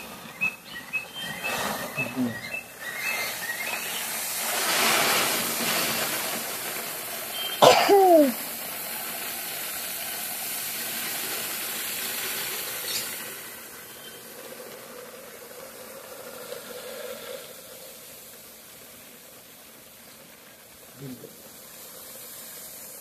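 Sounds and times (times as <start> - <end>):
grain pouring onto a pile: 3.2 - 23.0
person short vocal sound: 7.6 - 8.4.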